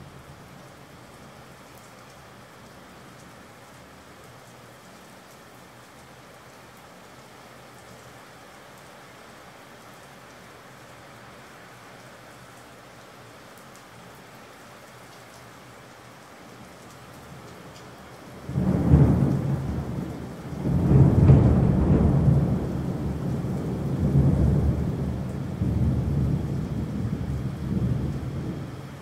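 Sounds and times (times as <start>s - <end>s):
steady rain: 0.0s - 29.0s
thunder rumbling: 18.4s - 29.0s.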